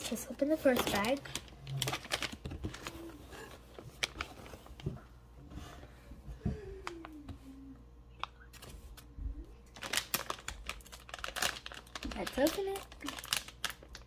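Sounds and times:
plastic pouches crinkling: 0.0 - 4.9, 9.7 - 14.0.

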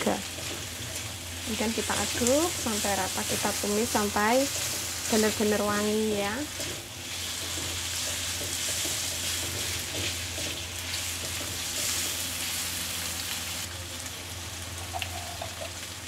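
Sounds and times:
food sizzling in hot oil: 0.0 - 16.0
spatula stirring in wok: 0.2 - 13.0.

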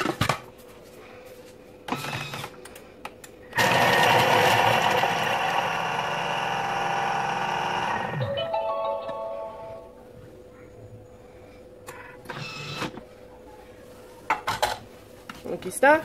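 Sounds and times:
food processor blade chopping: 3.6 - 8.2.

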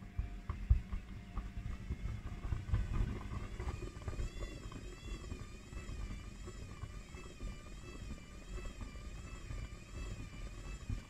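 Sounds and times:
faint wavering high whine: 3.0 - 11.0.

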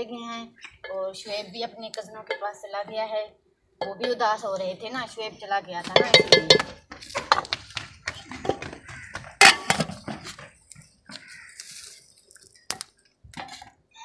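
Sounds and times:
steel plates clanking: 5.9 - 7.5
ladle knocking in metal pot: 5.9 - 7.6.

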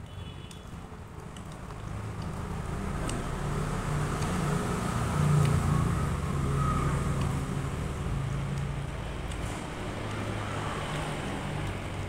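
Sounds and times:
chewing corn clicks: 0.4 - 6.2, 7.1 - 12.0.

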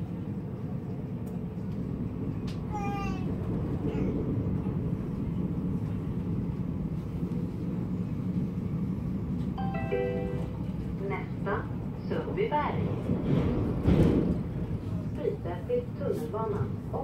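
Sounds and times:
train wheels rumbling: 0.0 - 17.0
brief pitched tone: 9.6 - 10.6.

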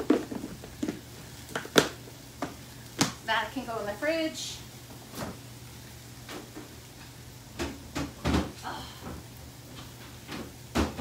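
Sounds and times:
dishes knocking in a refrigerator: 7.6 - 8.6, 10.4 - 11.0.

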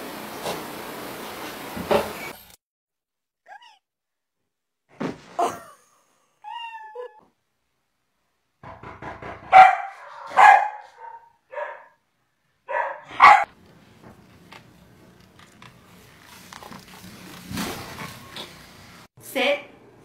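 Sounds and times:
dog barking: 9.4 - 12.0, 12.6 - 13.5.

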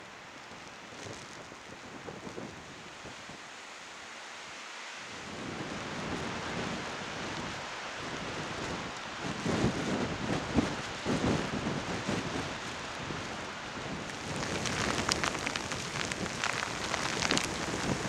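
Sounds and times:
steady rain hiss: 0.0 - 18.0
gusty wind on microphone: 5.2 - 18.0
sharp raindrop ticks: 14.1 - 18.0.

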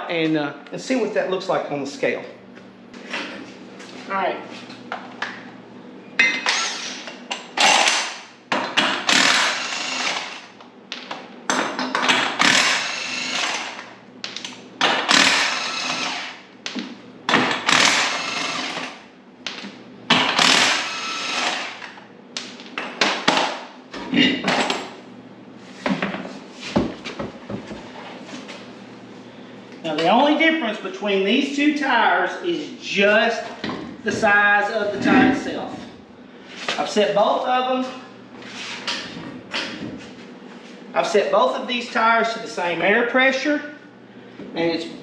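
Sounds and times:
impact wrench bursts: 6.4 - 10.5, 12.2 - 13.8, 14.9 - 16.4, 17.5 - 19.0, 20.1 - 21.9.

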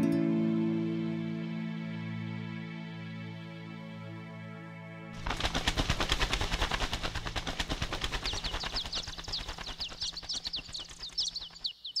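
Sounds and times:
rapid crackle of sharp clicks: 5.2 - 11.8
high falling chirps: 8.0 - 12.0.

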